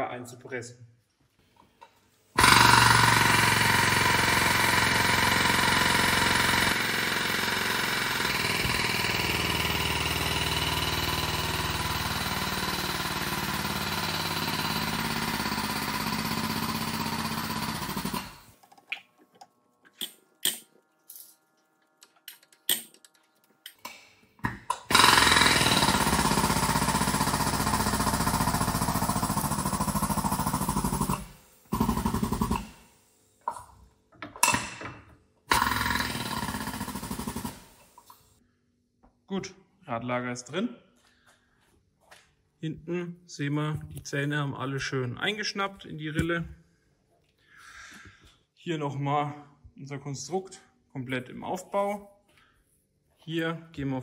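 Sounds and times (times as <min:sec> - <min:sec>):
pneumatic cylinder running: 0:02.4 - 0:18.5, 0:24.9 - 0:33.0, 0:35.5 - 0:38.3.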